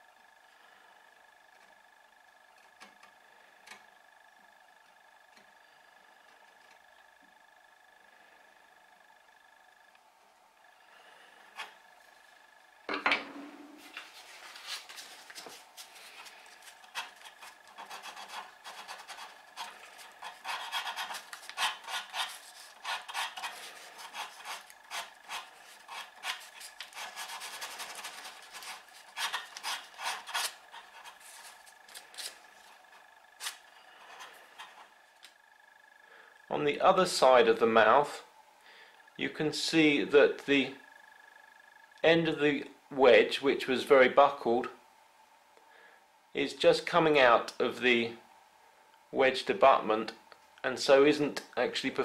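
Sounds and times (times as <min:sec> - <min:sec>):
sandpaper scraping wood: 0:13.8 - 0:32.7.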